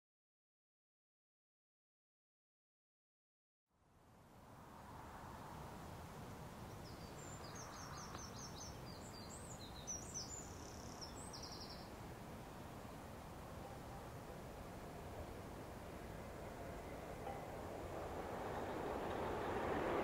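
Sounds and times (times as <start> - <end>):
low rushing background: 4.3 - 20.0
songbird chirping: 6.6 - 14.7.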